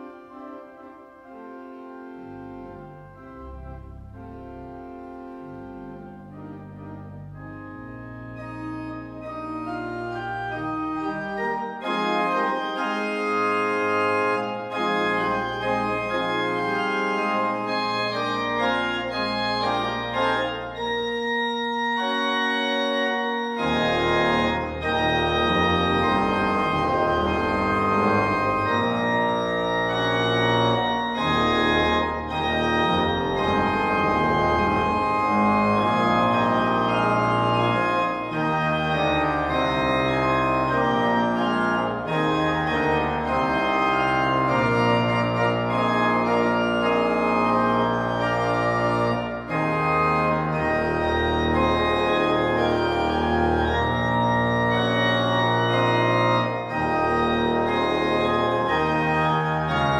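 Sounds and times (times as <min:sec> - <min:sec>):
church organ chords: 0:00.0 - 0:59.9.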